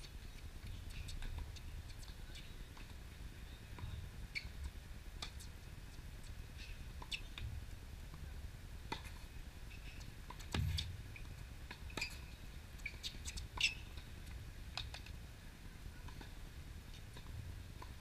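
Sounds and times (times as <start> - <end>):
ball bouncing on hard court: 10.4 - 12.2.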